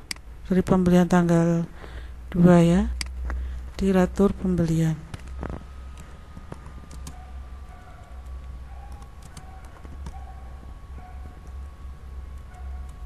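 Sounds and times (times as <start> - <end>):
steady low hum: 0.0 - 13.0
keyboard key clicks: 8.9 - 10.2.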